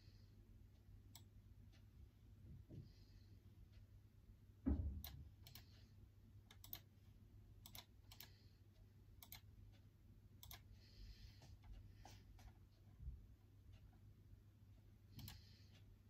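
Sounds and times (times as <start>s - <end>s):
computer keyboard typing: 6.5s - 6.9s, 9.2s - 9.5s, 10.4s - 10.7s.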